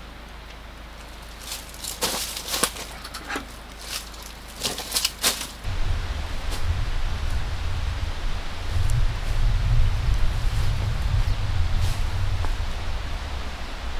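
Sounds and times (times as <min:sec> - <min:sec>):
handling rustles and clicks: 0:01.0 - 0:05.6
wind rumble on microphone: 0:05.6 - 0:13.9.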